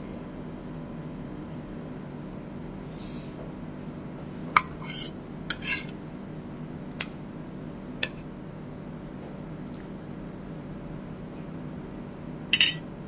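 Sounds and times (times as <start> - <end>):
steady low hum: 0.0 - 13.0
utensil clinking against plate: 4.6 - 5.9, 12.5 - 12.9.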